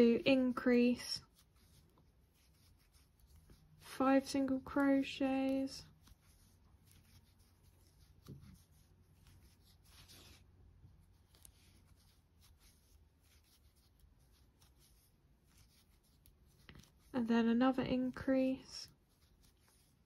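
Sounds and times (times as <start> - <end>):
yarn rubbing with crochet hook: 0.0 - 20.0.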